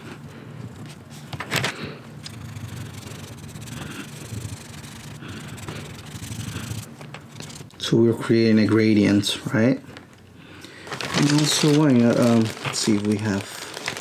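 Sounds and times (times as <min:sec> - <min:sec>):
pencil rubbing on paper: 0:02.2 - 0:07.7.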